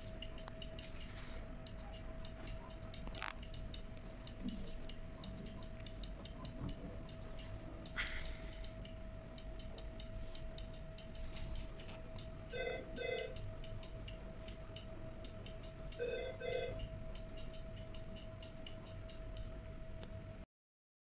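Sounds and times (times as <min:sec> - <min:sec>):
stepper motor clicking: 0:00.0 - 0:20.2
faint steady whine: 0:00.0 - 0:20.5.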